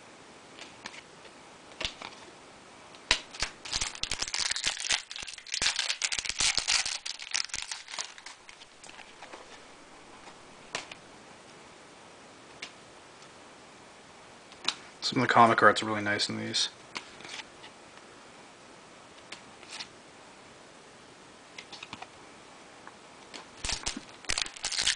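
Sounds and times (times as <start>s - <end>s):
foil wrapper tearing and crinkling: 3.3s - 9.6s, 23.6s - 24.9s.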